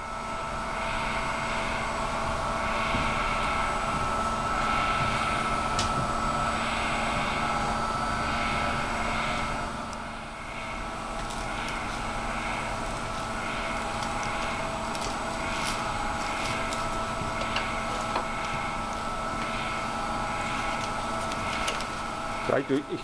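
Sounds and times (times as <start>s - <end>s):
lab machinery running: 0.0s - 23.0s.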